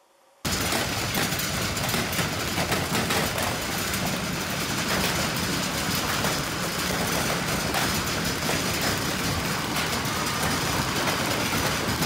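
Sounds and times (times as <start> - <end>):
hailstones pelting the ground: 0.5 - 12.0.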